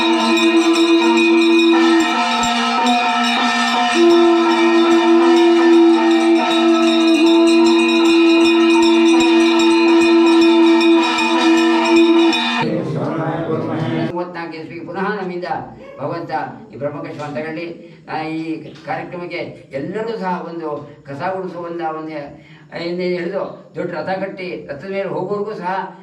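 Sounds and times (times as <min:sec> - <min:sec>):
fast clatter of strikes: 0:00.0 - 0:12.6
conch shells blown: 0:00.0 - 0:12.7.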